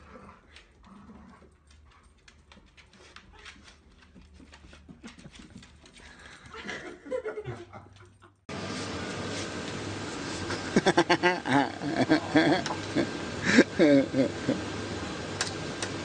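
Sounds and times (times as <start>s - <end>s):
dog claws scrabbling on wooden floor: 1.7s - 6.1s.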